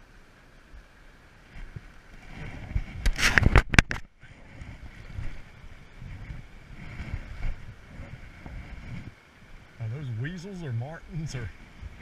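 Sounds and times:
small stream flowing: 0.0s - 12.0s
rustling and knocking on microphone: 1.6s - 5.4s, 6.1s - 9.2s.

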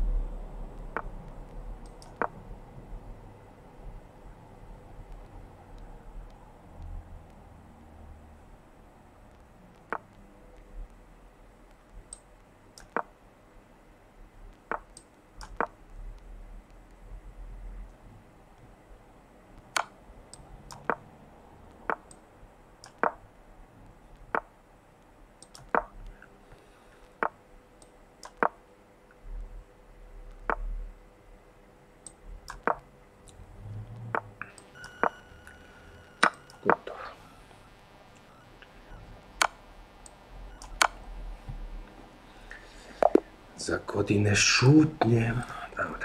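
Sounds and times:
sharp short clicks: 12.1s - 13.1s, 22.8s - 23.2s, 25.4s - 25.9s, 27.2s - 28.6s, 32.0s - 33.4s, 39.4s - 41.0s.

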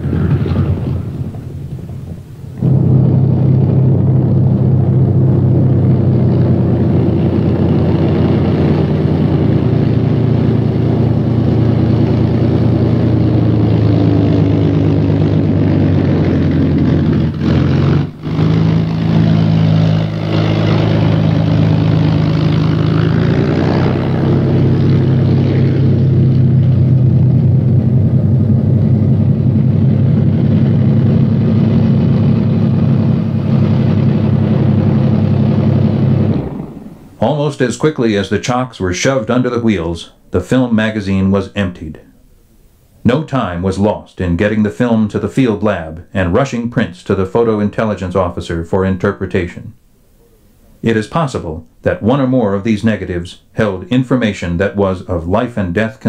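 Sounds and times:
propeller engine drone: 0.0s - 43.6s.

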